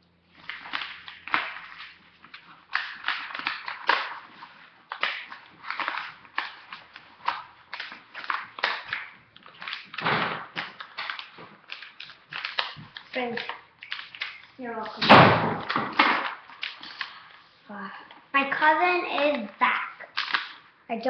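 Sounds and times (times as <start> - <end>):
paper crinkling as it is rolled: 0.3 - 15.0.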